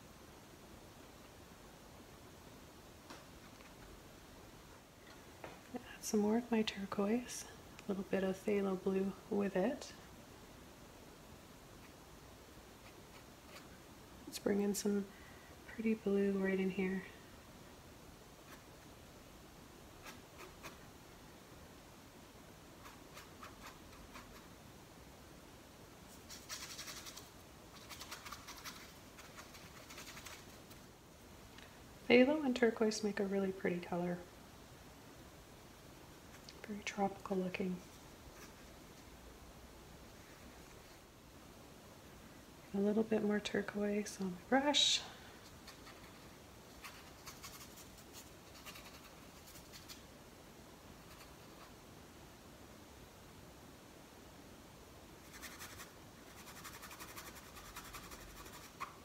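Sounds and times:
paintbrush scrubbing on canvas: 55.2 - 59.0.

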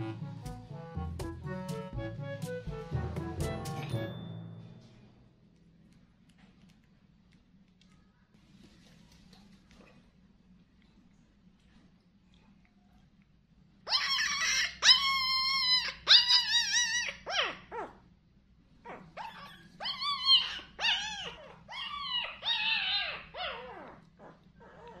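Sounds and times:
puppy whimpering and crying: 13.9 - 18.0, 18.8 - 25.0.

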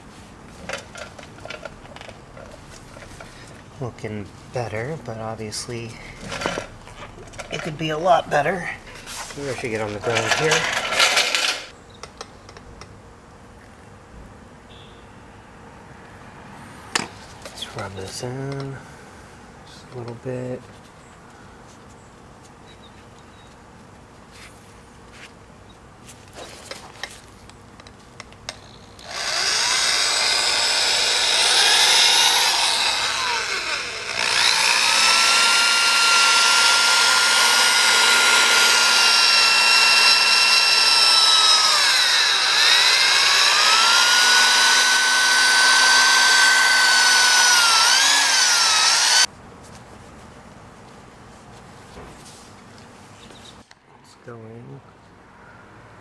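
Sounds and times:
drill whine polishing metal: 29.0 - 49.3.

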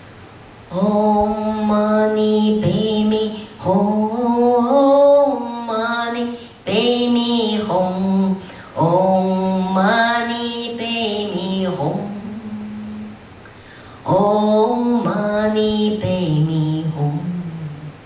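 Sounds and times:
woman singing unaccompanied: 0.7 - 13.3, 14.0 - 18.0
singer breathing: 6.3 - 6.6, 8.4 - 8.8, 13.4 - 14.1.

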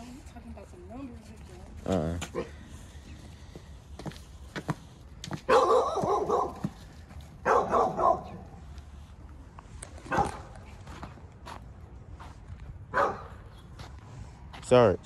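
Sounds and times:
dog barking: 5.5 - 6.8, 7.4 - 8.5, 10.1 - 10.5, 12.9 - 13.4.

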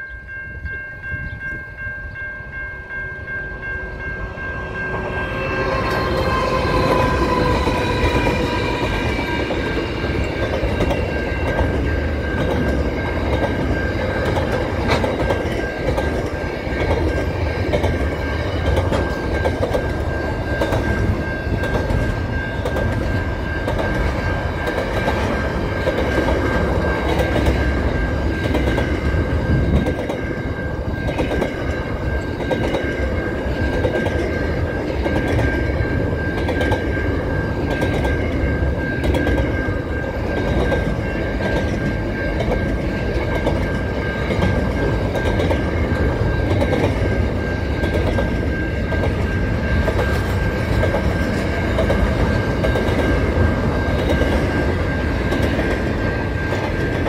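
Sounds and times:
freight train rumbling past: 0.0 - 57.0
steady high tone: 0.0 - 57.0
falling multi-note tone: 2.7 - 29.6.

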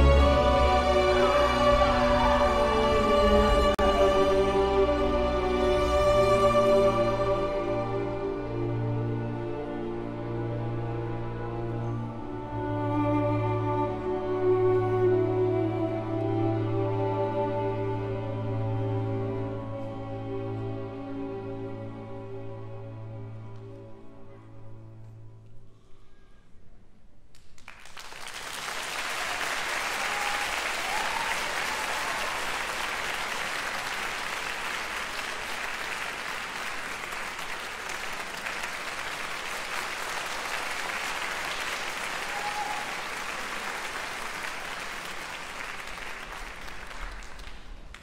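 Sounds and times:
audience applauding: 27.3 - 48.0.

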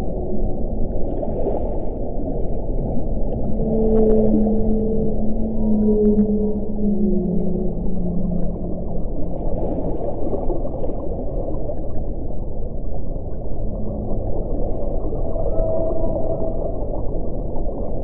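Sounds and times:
underwater rush: 0.0 - 18.0
whale calls low moaning: 2.6 - 10.1, 13.3 - 17.8.

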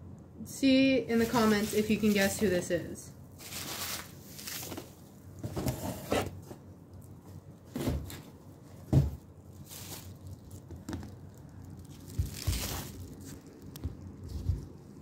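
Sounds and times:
bubble wrap crinkling: 1.1 - 2.6, 3.3 - 5.4, 8.6 - 15.0.

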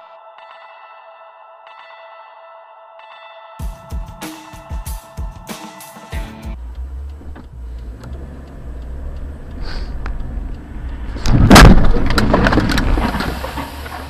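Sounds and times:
car engine and road rumble: 6.2 - 14.0
loud car crash: 11.2 - 14.0.

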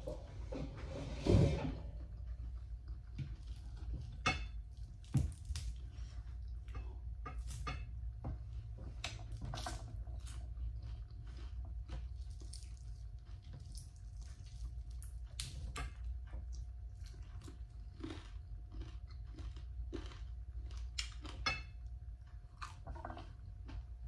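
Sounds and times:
steady low hum: 0.0 - 24.0
chewing and lip smacking: 9.0 - 21.5.

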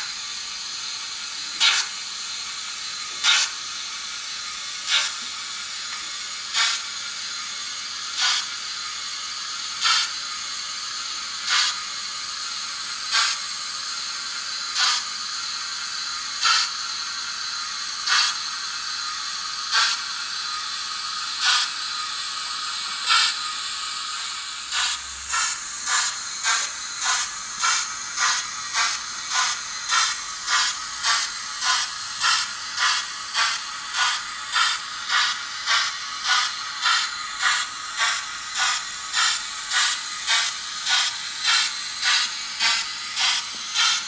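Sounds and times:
steam exhaust chuffs: 0.0 - 44.0
digital steam hiss: 12.5 - 44.0.

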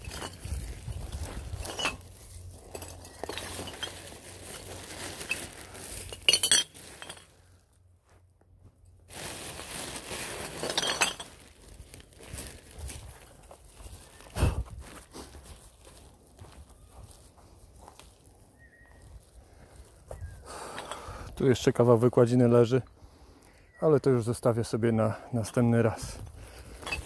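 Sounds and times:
plastic bag rustling: 0.0 - 7.6, 9.0 - 20.0
glass bottles clinking: 1.5 - 4.3, 5.2 - 7.3, 10.6 - 11.4, 26.7 - 27.0.

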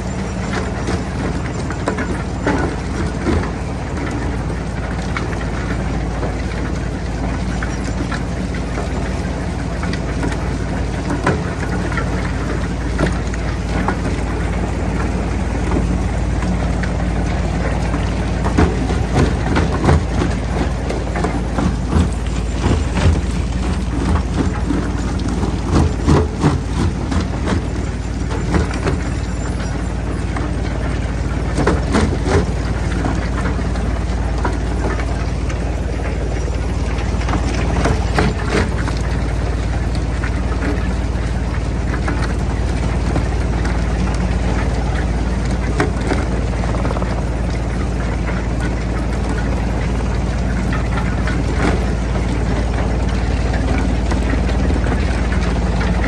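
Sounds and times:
jaw crusher droning: 9.8 - 56.0.

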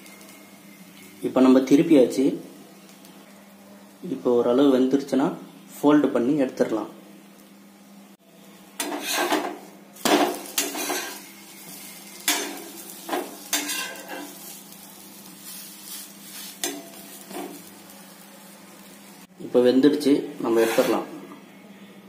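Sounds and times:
steel spatula scraping and clinking: 8.8 - 9.5, 10.2 - 11.2, 13.5 - 14.3, 20.5 - 21.1.

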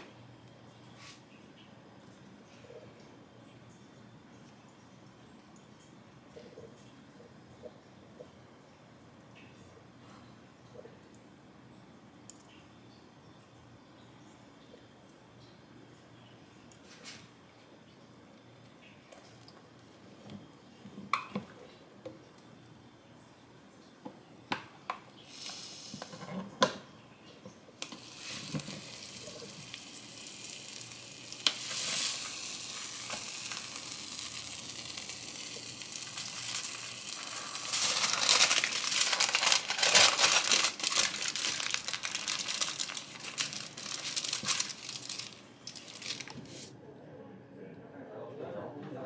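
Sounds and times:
cheese sizzling on hot plates: 25.0 - 26.8, 27.7 - 46.7
aluminium foil crinkling: 27.8 - 46.7.

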